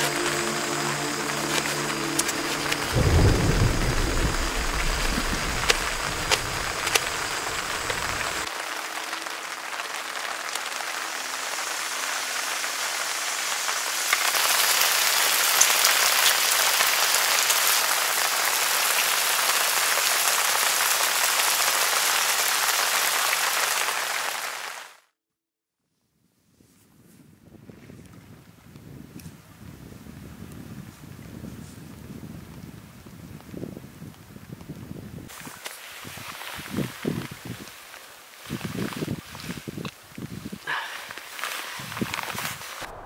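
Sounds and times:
low rumble: 0.0 - 8.5, 42.8 - 43.0
steady rain falling: 0.0 - 25.0, 31.3 - 43.0.

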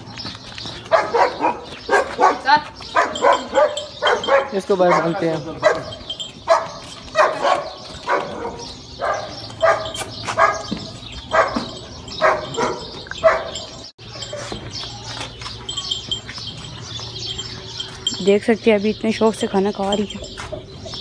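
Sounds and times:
dog barking: 0.9 - 14.5.

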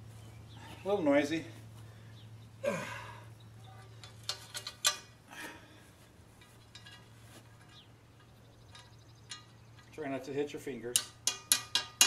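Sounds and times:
steady low hum: 0.0 - 12.0
light metallic clinks: 3.6 - 5.2, 6.4 - 12.0.

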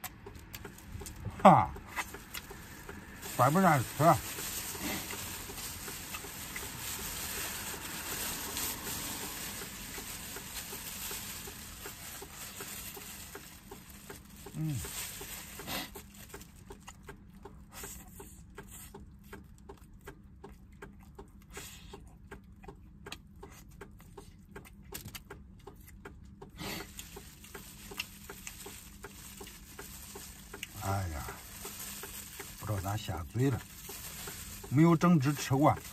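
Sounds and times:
wet chewing and lip-smacking: 0.0 - 35.9
plastic bag crinkling: 0.8 - 16.4, 26.9 - 35.9.

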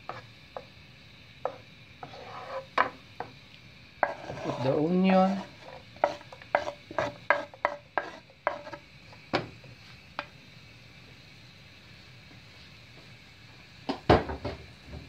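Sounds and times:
butter sizzling: 0.0 - 15.0
wooden spoon knocking on board: 6.0 - 8.7.

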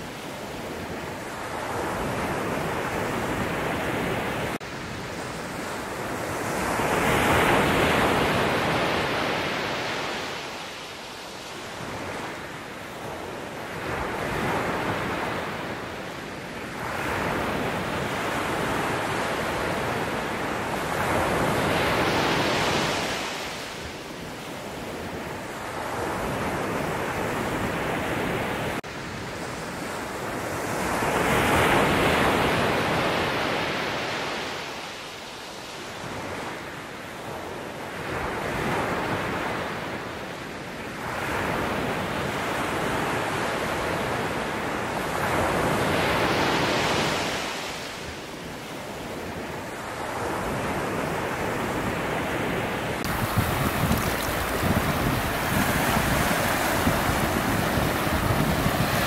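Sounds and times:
ocean waves breaking on rocks: 49.8 - 59.0.

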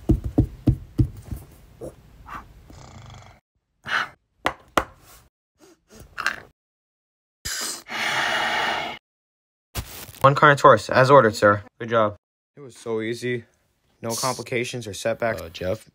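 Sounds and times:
footstep knocks: 0.0 - 1.5
breathy sniffs and snorts: 1.8 - 4.2, 7.5 - 9.0.

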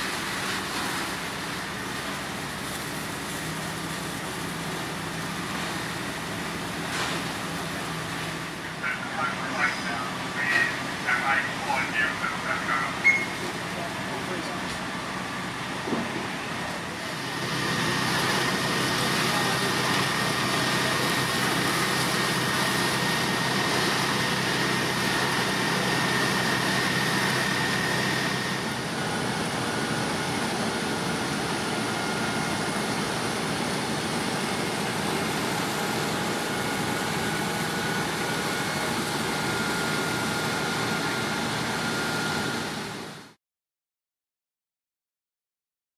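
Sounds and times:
fire engine pumps running: 0.0 - 43.4
thin steady whine: 7.8 - 14.6.

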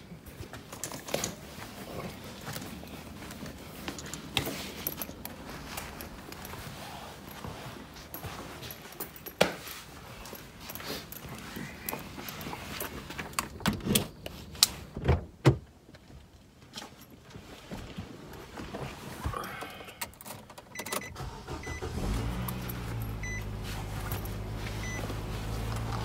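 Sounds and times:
car engine starting and idling: 19.8 - 26.0.

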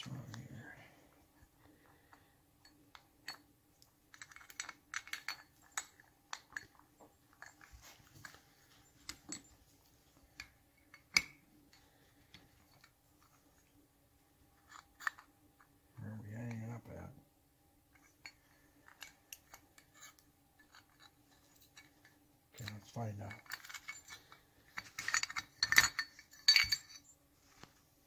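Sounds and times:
small metal parts clicking: 1.8 - 8.4, 14.6 - 15.7, 17.9 - 27.2.

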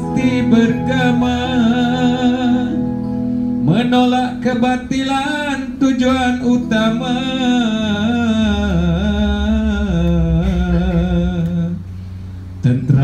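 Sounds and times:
soft electronic keyboard: 0.0 - 11.8
man chanting through microphone: 12.6 - 13.0.

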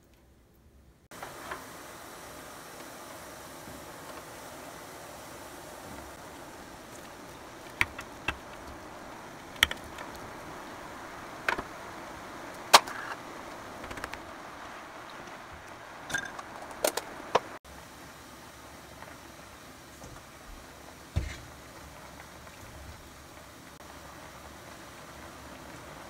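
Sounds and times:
stew boiling with hiss: 1.1 - 26.0
sharp ticks: 6.8 - 10.3.

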